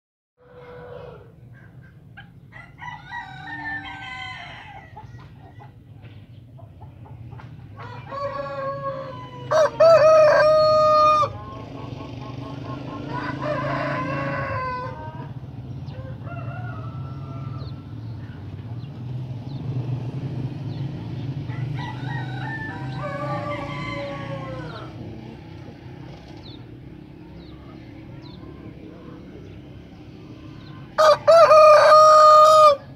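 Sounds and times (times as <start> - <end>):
rooster crowing: 0.4 - 1.3, 2.5 - 5.3, 7.8 - 11.4, 13.1 - 15.3, 15.9 - 18.0, 21.5 - 25.0, 31.0 - 32.9
chicken calls: 0.4 - 18.8, 21.5 - 26.8, 27.4 - 32.9.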